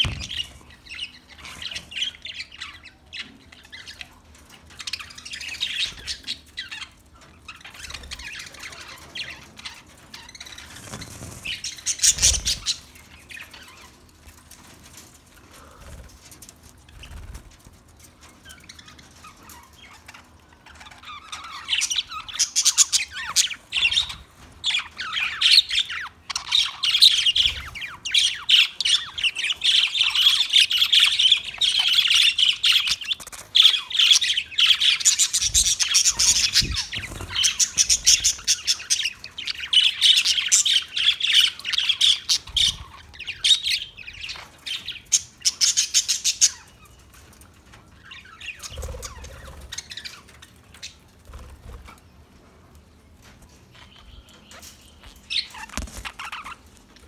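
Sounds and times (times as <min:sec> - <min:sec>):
budgerigars chattering: 0:25.1 - 0:43.9.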